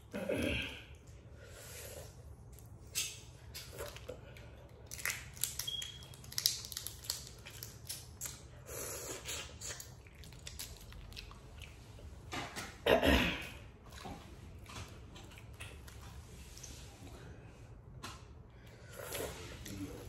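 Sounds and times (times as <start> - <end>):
chewing: 2.5 - 12.1, 13.8 - 16.8
shells crackling and snapping: 4.8 - 8.4.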